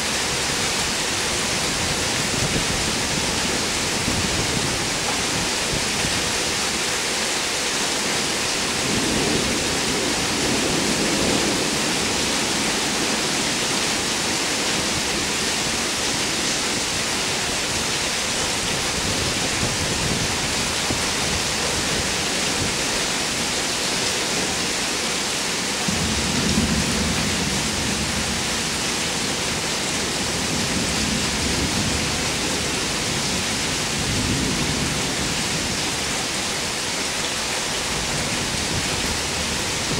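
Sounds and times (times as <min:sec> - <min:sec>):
heavy rain falling: 0:00.0 - 0:39.9
thunder rumbling: 0:08.7 - 0:22.9, 0:25.9 - 0:36.0.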